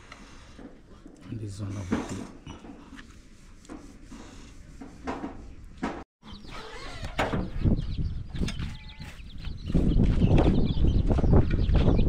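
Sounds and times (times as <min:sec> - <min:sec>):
birds calling: 0:05.4 - 0:12.0.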